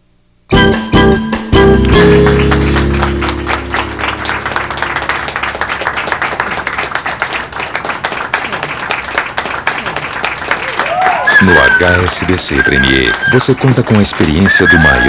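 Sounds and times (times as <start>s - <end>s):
guitar chord ringing: 0.5s - 5.8s
people clapping: 1.7s - 15.0s.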